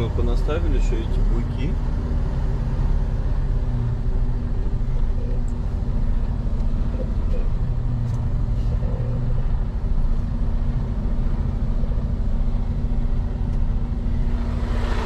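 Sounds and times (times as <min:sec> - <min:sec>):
truck diesel engine droning: 0:00.0 - 0:15.0.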